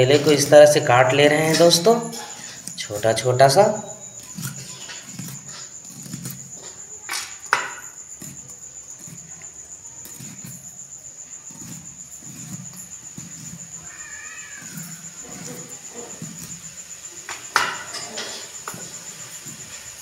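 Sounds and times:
rising and falling animal call: 13.8s - 15.7s.

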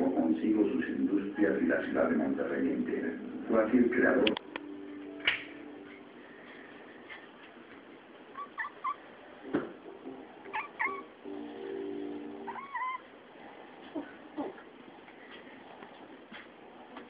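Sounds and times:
cat meowing: 10.5s - 11.1s, 12.5s - 13.1s.

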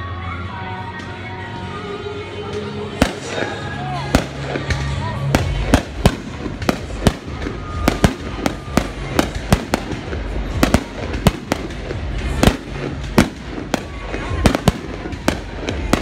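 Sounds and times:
fireworks crackling: 0.9s - 16.0s
fireworks banging: 2.5s - 16.0s.

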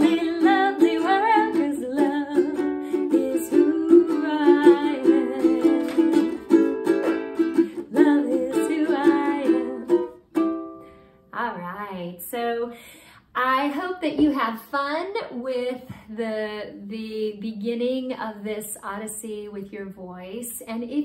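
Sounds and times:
woman singing: 0.0s - 6.8s, 7.5s - 10.1s
ukulele strumming: 0.0s - 11.1s.

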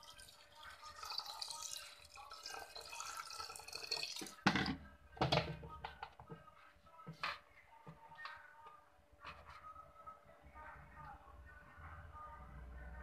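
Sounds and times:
water pouring into a pot: 0.0s - 4.5s.

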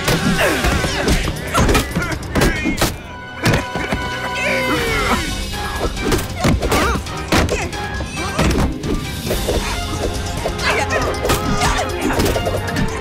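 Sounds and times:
fight-scene music: 0.0s - 13.0s.

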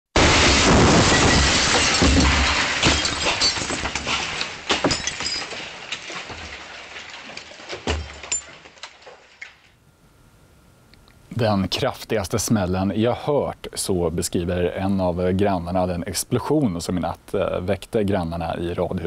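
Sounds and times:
explosion blast: 0.2s - 2.9s
shattered glass and debris falling: 0.2s - 9.8s.

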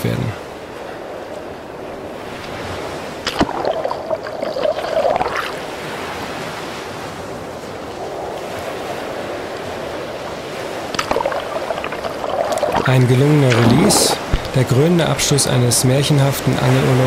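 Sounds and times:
small waves washing in surf: 0.4s - 17.0s
water splashing and gurgling: 2.7s - 6.3s, 10.5s - 14.8s.

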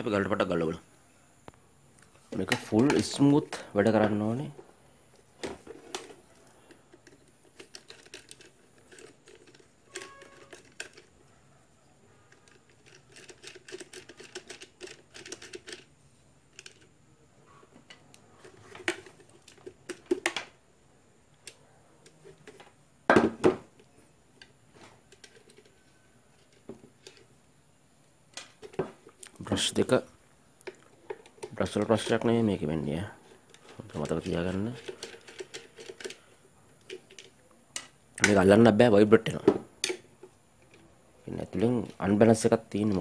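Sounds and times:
plastic casing clicks and scrapes: 5.5s - 11.2s.

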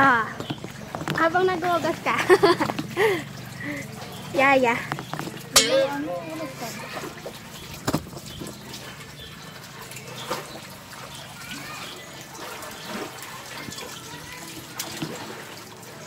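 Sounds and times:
tap water running into sink: 0.0s - 16.0s
dishes knocking: 4.9s - 6.1s.

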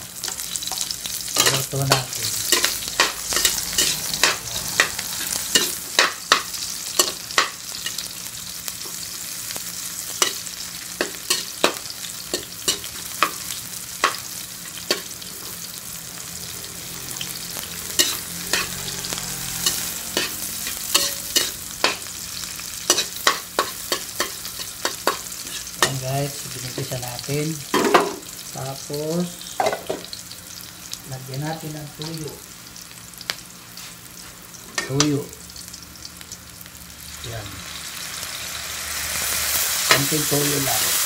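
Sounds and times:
onions and garlic sizzling in oil: 0.0s - 41.0s
metal spatula scraping a wok: 1.4s - 8.1s, 17.9s - 26.0s.

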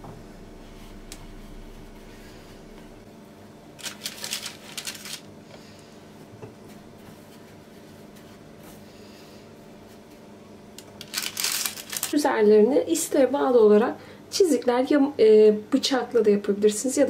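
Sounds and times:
faint steady hum: 0.0s - 17.0s
seeds rustling on a plate: 3.8s - 5.3s, 11.0s - 12.2s.

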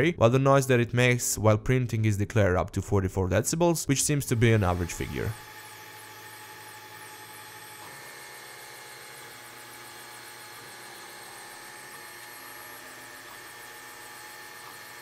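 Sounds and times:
printer motors humming and whining: 4.3s - 15.0s.

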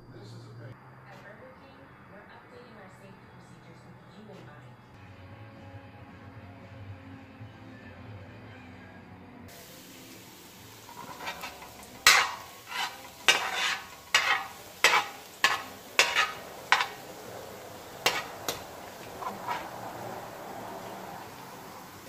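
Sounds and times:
faint sizzle: 9.5s - 22.0s
metal spatula scraping a wok: 10.6s - 22.0s.

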